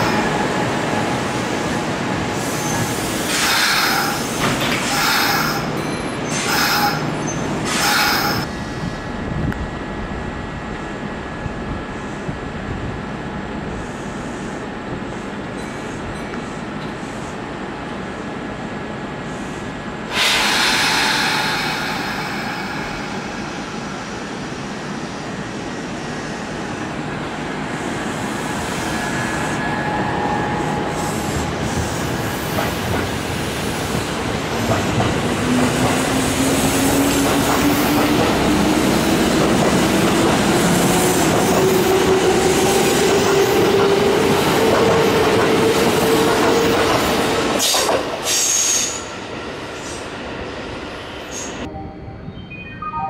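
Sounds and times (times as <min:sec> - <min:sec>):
train wheels and running gear: 0:01.8 - 0:08.8, 0:27.6 - 0:50.2.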